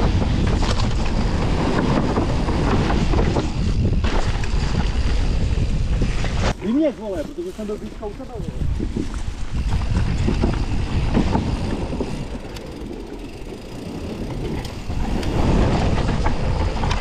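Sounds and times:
bike rattling knocks: 0:00.0 - 0:06.0, 0:08.0 - 0:17.0
bike tyre noise: 0:00.0 - 0:17.0
wind buffeting microphone: 0:00.0 - 0:17.0.

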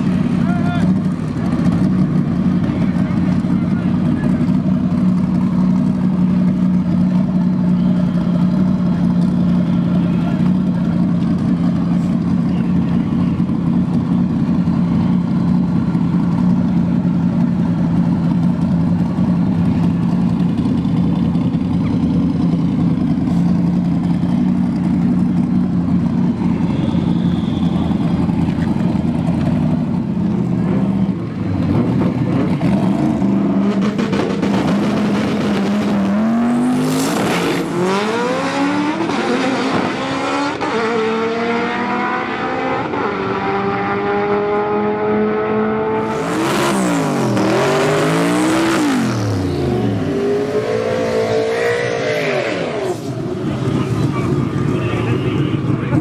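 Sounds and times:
drag race car engines revving: 0:00.0 - 0:56.0.

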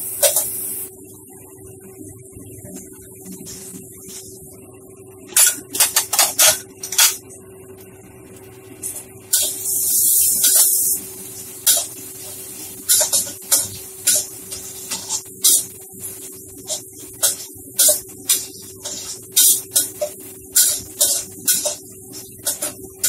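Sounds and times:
hiss of frying: 0:00.0 - 0:01.0, 0:08.2 - 0:23.0
metal spatula scraping a wok: 0:11.6 - 0:23.0.

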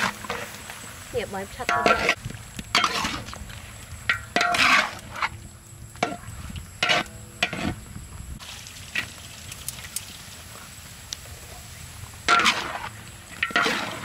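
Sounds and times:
light sizzling: 0:00.0 - 0:14.0
metal spatula scraping a wok: 0:01.6 - 0:03.4, 0:04.0 - 0:05.4, 0:06.0 - 0:07.8, 0:12.3 - 0:14.0.

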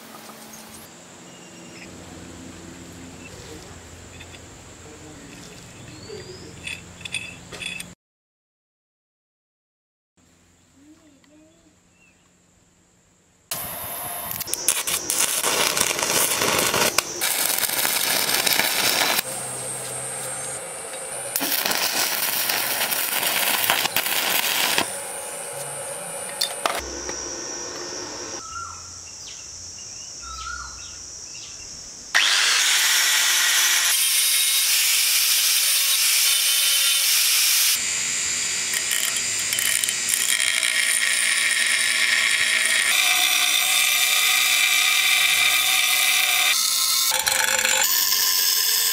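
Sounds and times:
bench grinder grinding metal pipe: 0:13.5 - 0:28.4, 0:32.2 - 0:48.9
metalworking power tool: 0:13.5 - 0:28.4, 0:32.2 - 0:48.9.

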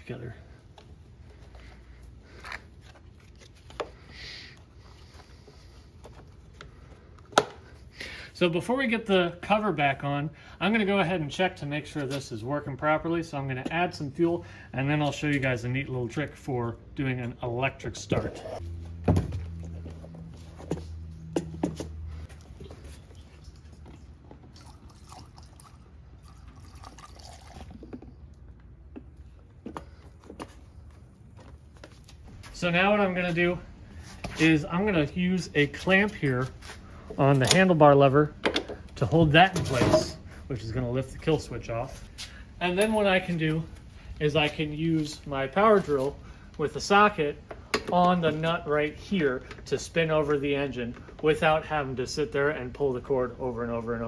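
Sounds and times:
liquid trickling into tank: 0:22.6 - 0:28.3.

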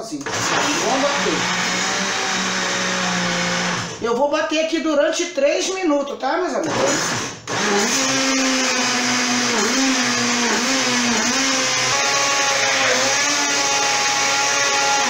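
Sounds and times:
electric blender motor whine: 0:00.2 - 0:04.0, 0:06.7 - 0:15.0.

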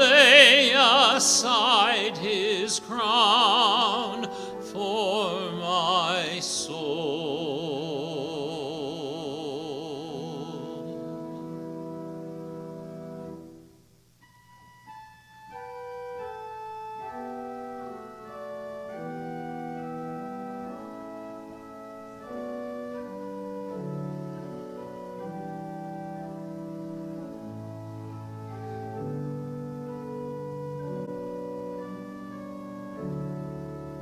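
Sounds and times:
man singing held note: 0:00.0 - 0:11.6
organ chords: 0:00.0 - 0:34.0.

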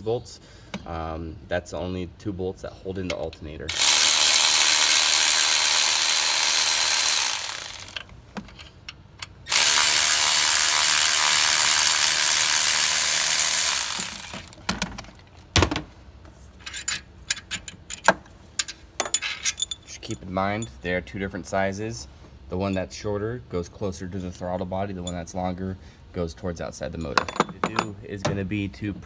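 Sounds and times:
electric ratchet running: 0:03.7 - 0:08.0, 0:09.5 - 0:14.6
clicks and knocks of metal parts: 0:16.6 - 0:20.8, 0:26.9 - 0:28.4.

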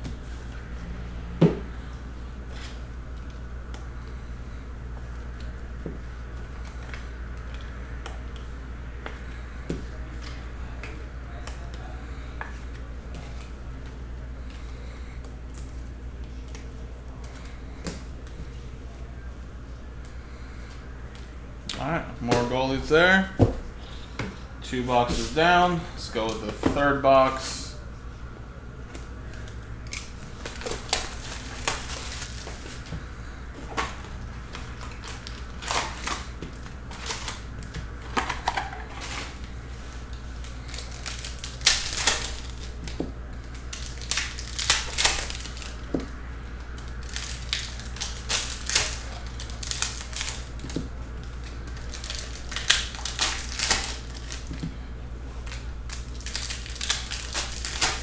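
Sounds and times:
steady low hum: 0:00.0 - 0:58.0
wrappers crinkling and tearing: 0:29.2 - 0:32.9, 0:33.8 - 0:58.0.

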